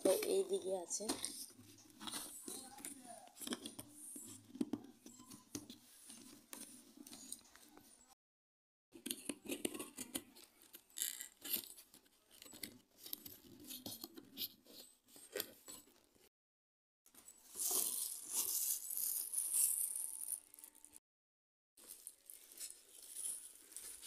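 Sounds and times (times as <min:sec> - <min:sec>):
plastic wrapping crinkling: 0:17.5 - 0:21.0, 0:21.8 - 0:24.0.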